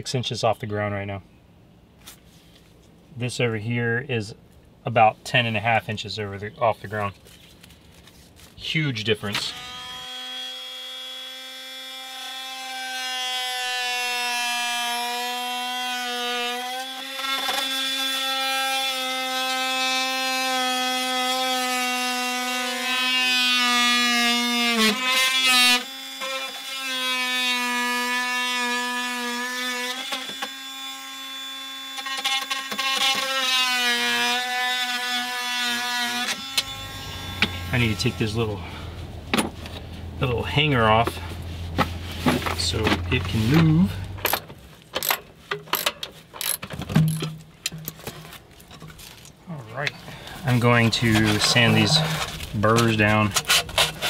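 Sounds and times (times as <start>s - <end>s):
oscillating tool cutting pipe: 31.4s - 38.5s, 45.0s - 48.0s, 50.8s - 54.0s.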